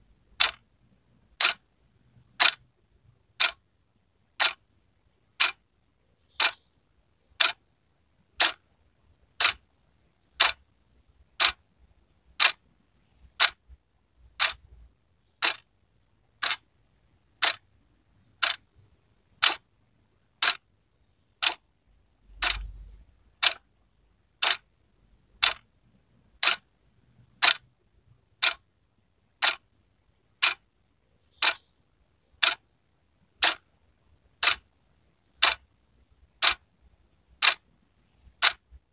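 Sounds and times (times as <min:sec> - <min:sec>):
wall clock ticking: 0:00.3 - 0:00.7, 0:01.3 - 0:05.7, 0:06.3 - 0:06.7, 0:07.3 - 0:07.6, 0:08.2 - 0:11.7, 0:12.3 - 0:16.7, 0:17.3 - 0:20.7, 0:21.4 - 0:21.7, 0:22.3 - 0:24.7, 0:25.3 - 0:29.7, 0:30.3 - 0:30.7, 0:31.3 - 0:32.7, 0:33.3 - 0:36.8, 0:37.4 - 0:38.9.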